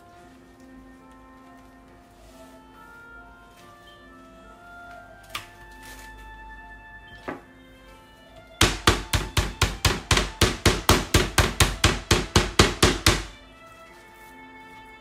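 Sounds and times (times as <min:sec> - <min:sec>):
background music: 0:00.0 - 0:15.0
meat mallet pounding on wooden board: 0:08.6 - 0:13.4.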